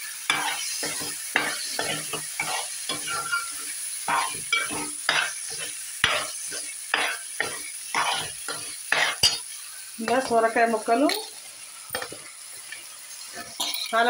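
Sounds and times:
low sizzle from pot: 0.0s - 14.0s
metal spoon scraping a pot: 0.3s - 9.4s, 13.4s - 14.0s.

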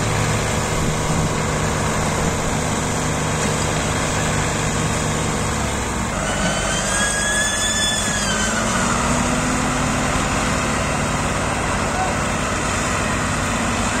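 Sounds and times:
diesel tractor engines under load: 0.0s - 14.0s
high whistle: 6.2s - 9.1s.

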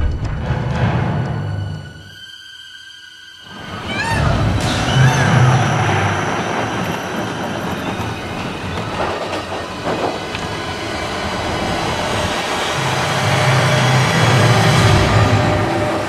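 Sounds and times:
roller coaster cars rattling on track: 3.6s - 16.0s.

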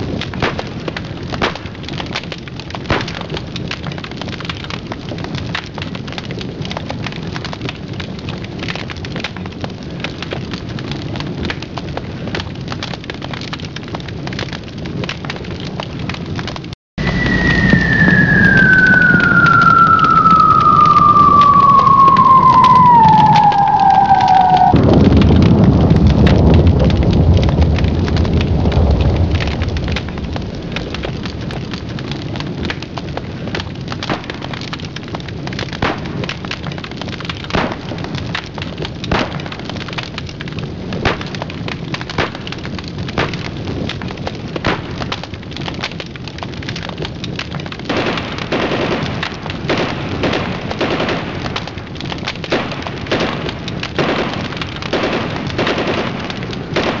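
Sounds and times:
crackles and pops: 0.0s - 57.0s
explosion low rumble: 17.0s - 32.2s.

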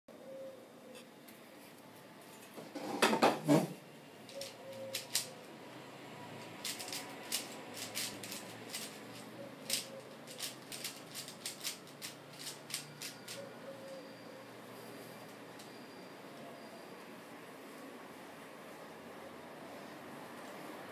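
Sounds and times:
plastic puzzle cube clicking: 4.3s - 5.3s, 6.4s - 13.4s.

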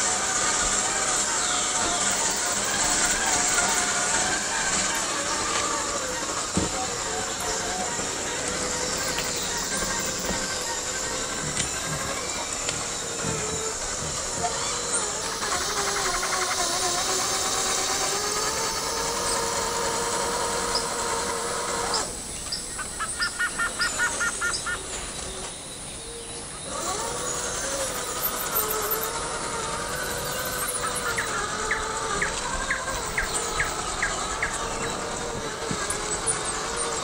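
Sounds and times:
birds chirping: 0.0s - 37.0s
insects: 0.0s - 37.0s.

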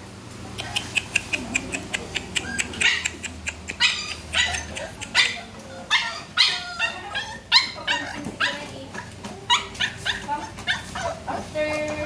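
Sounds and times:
puppy yipping: 0.5s - 11.2s
quick sharp clicks: 0.6s - 3.8s.

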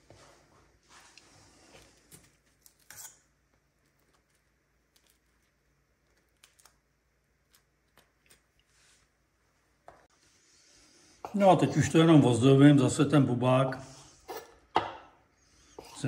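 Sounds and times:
fork scraping on bread: 2.7s - 3.2s.

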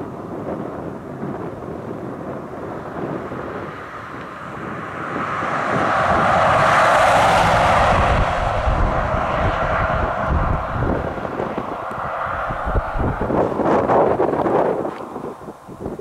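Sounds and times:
motor passing by: 4.2s - 14.2s.

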